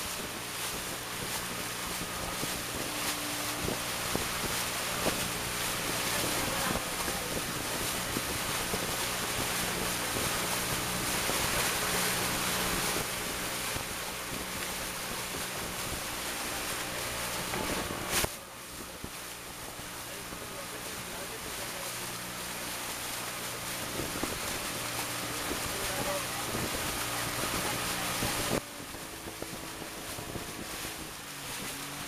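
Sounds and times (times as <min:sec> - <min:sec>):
boat motor running: 0:00.0 - 0:32.0
water rushing past hull: 0:00.0 - 0:32.0
wind buffeting microphone: 0:00.0 - 0:32.0.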